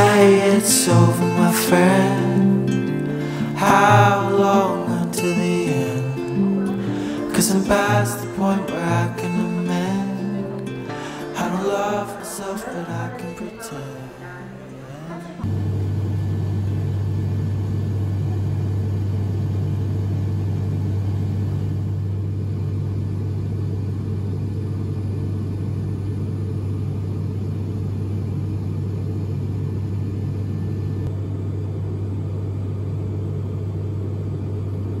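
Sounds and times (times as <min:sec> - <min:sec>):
airliner cabin engine rumble: 0:11.6 - 0:35.0.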